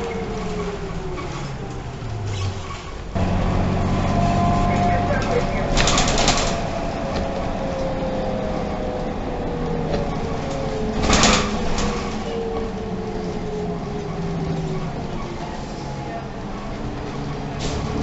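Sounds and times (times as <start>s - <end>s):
bus engine and road rumble: 0.0s - 18.0s.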